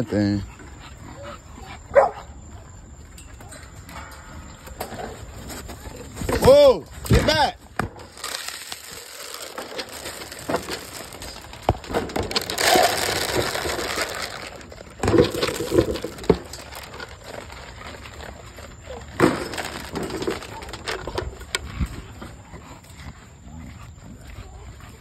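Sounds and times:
rustling crunching noise: 0:03.4 - 0:23.1.

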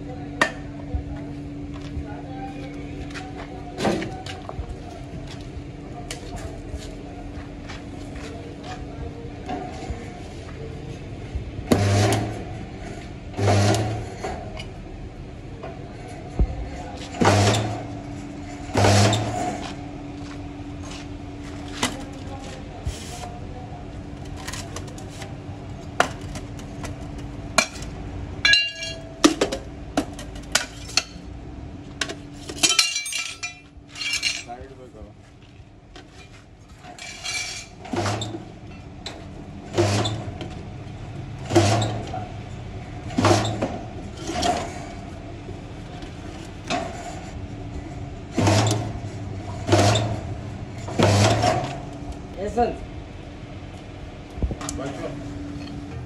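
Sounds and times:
steady machine hum: 0:00.0 - 0:56.0
metal clinks and knocks: 0:28.4 - 0:29.6, 0:32.4 - 0:34.6.

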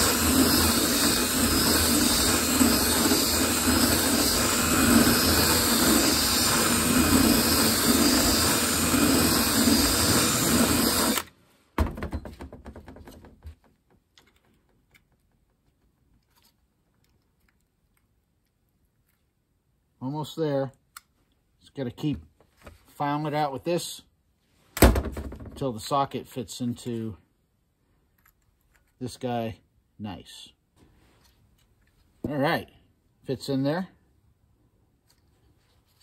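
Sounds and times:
rotary tool grinding metal: 0:00.0 - 0:11.3.

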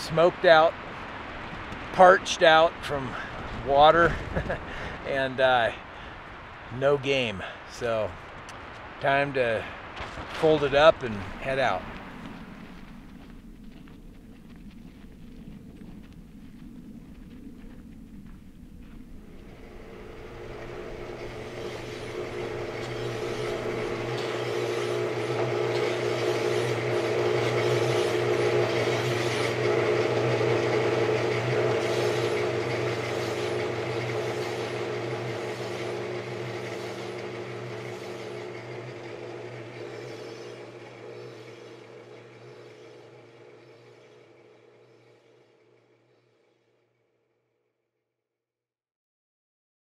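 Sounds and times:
vehicle engine running: 0:09.5 - 0:46.4.

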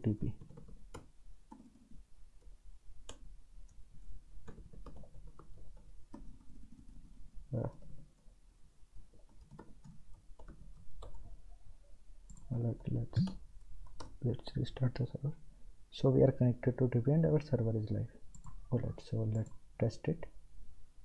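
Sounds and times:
faint low hum: 0:01.9 - 0:21.0
computer keyboard clicks: 0:18.3 - 0:18.6.

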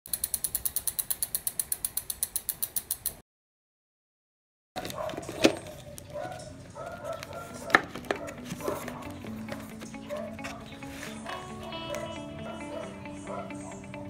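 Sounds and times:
fast ratcheting click: 0:00.1 - 0:03.2.

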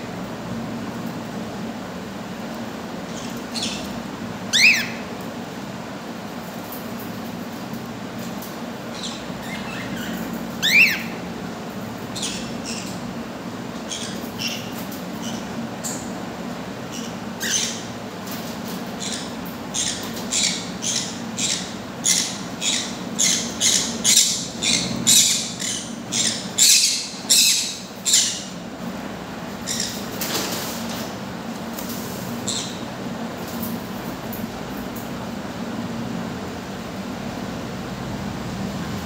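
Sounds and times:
cockatiel rising chirp: 0:04.5 - 0:05.0, 0:10.6 - 0:11.1
cockatiels harsh noisy calls: 0:04.5 - 0:05.1, 0:09.0 - 0:11.2, 0:17.0 - 0:18.0, 0:18.7 - 0:28.6.

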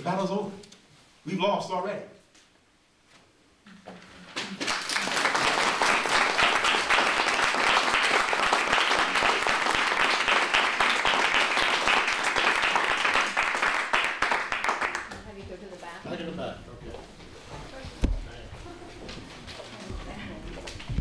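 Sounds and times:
audience applauding: 0:04.4 - 0:15.2.

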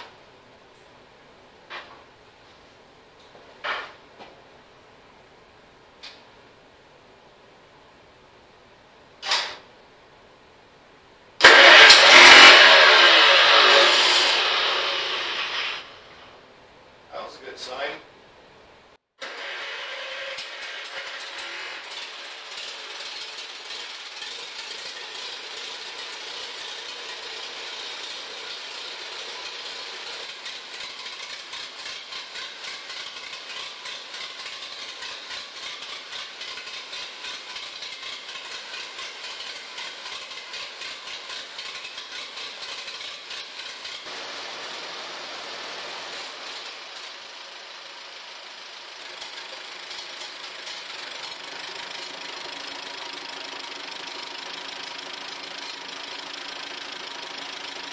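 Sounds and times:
tractor engine idling: 0:22.0 - 0:45.8, 0:46.4 - 0:57.9.

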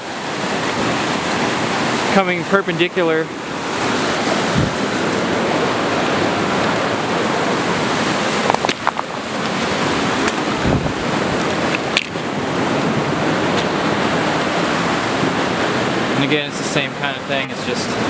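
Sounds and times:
creek rushing over rapids: 0:00.0 - 0:18.0
footsteps on gravel: 0:08.4 - 0:10.5.

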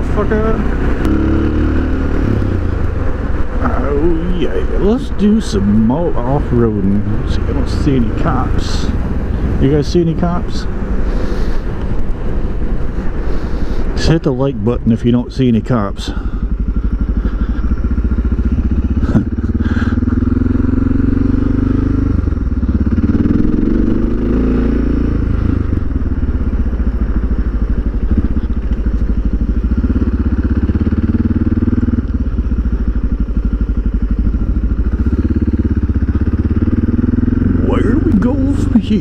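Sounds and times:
motorcycle engine accelerating: 0:00.0 - 0:39.0.

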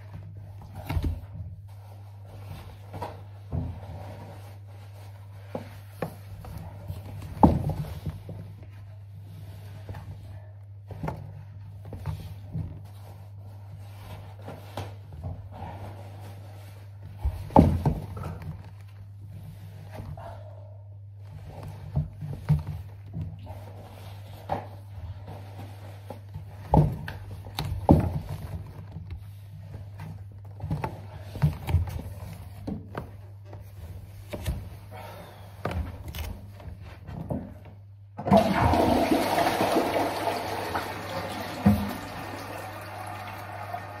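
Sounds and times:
toilet flushing: 0:38.2 - 0:44.0.

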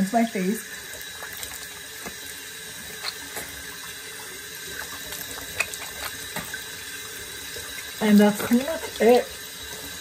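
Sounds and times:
water running into sink: 0:00.0 - 0:10.0
hands splashing water: 0:01.0 - 0:03.9, 0:04.6 - 0:06.8.

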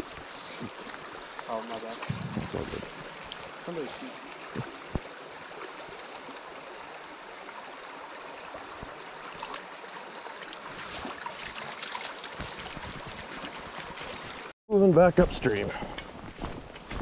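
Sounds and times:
stream rushing over gravel: 0:00.0 - 0:14.5.

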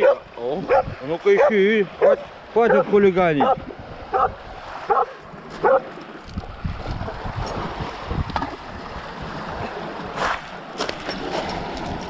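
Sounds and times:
dog barking: 0:00.0 - 0:05.9
small waves on pebble shore: 0:00.0 - 0:12.0.

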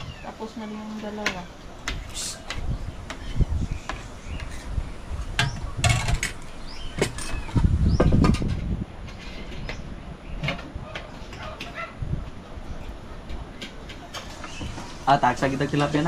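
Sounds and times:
low rumbling thumps: 0:01.0 - 0:11.0.

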